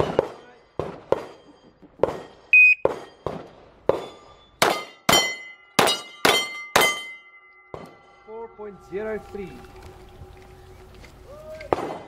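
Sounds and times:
shot timer beep: 2.6s - 2.9s.

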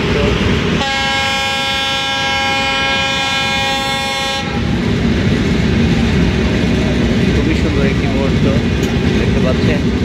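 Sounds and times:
train rumbling on track: 0.0s - 10.0s
train horn blast: 0.8s - 4.7s.

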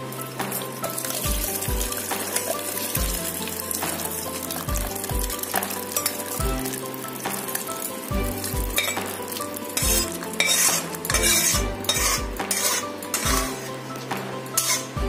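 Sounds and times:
background music with beat: 0.0s - 15.0s
liquid splashing into pot: 0.5s - 13.6s
metal knocking and scraping: 9.8s - 13.7s.

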